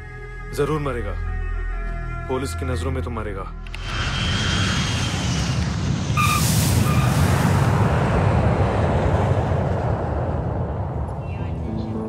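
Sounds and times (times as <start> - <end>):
aircraft rolling rumble: 3.6 - 12.0
jet engine rumble and whine: 3.7 - 12.0.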